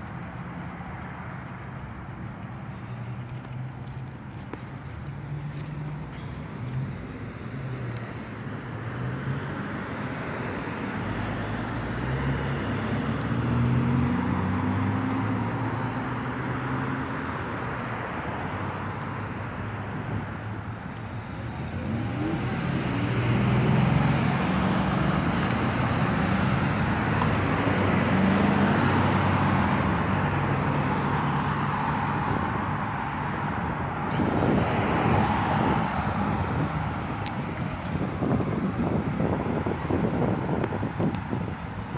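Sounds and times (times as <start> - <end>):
vehicles driving past: 0.0 - 41.9
wind buffeting microphone: 33.9 - 41.9.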